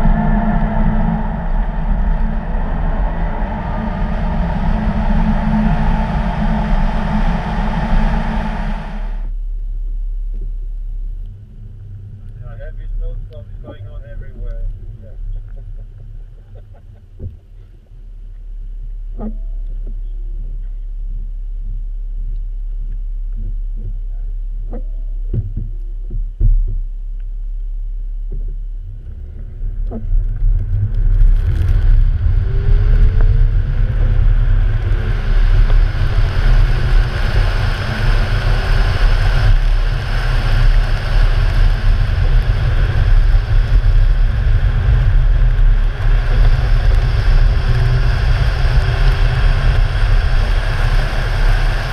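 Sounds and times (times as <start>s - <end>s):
car engine idling: 0.0s - 21.5s
car driving on ice: 29.0s - 51.9s.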